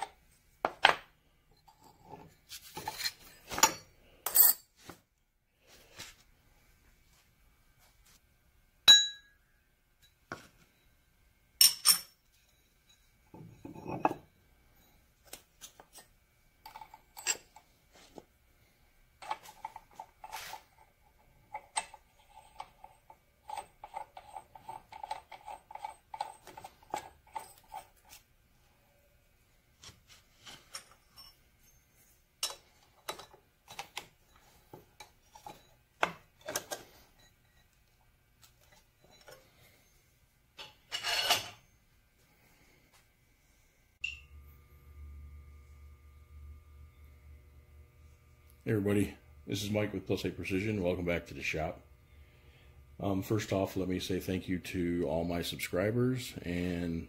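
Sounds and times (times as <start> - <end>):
grinder wheel tap ringing: 44.0 - 44.4.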